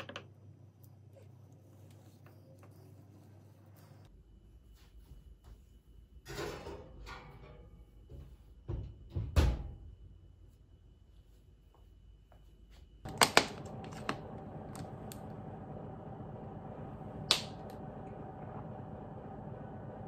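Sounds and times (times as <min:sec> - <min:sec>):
steady hum: 0:10.1 - 0:20.0.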